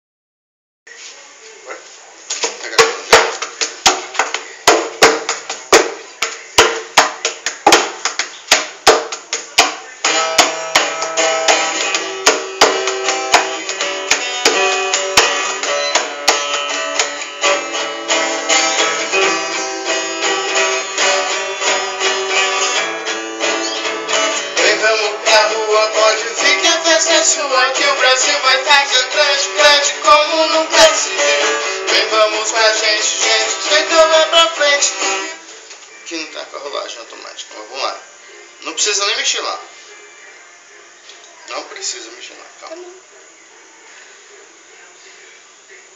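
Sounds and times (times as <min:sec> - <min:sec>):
acoustic guitars strumming: 0:02.4 - 0:37.0.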